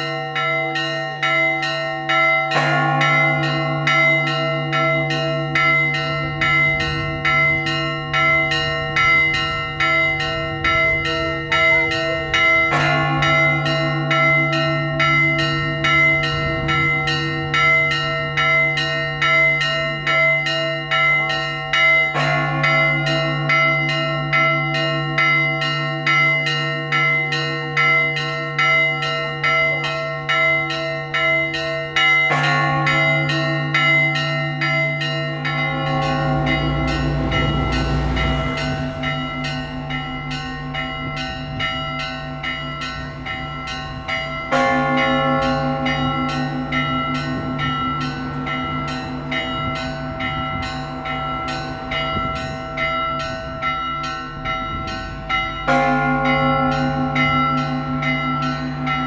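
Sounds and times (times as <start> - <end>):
big low bell tolling: 0.0 - 59.0
small church bells ringing rapidly: 0.0 - 59.0.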